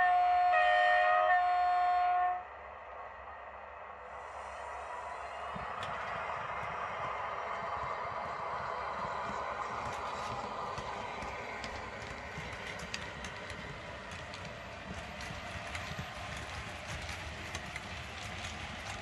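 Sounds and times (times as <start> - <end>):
electric locomotive sound: 0.0 - 19.0
train wheels clicking over track joints: 5.1 - 19.0.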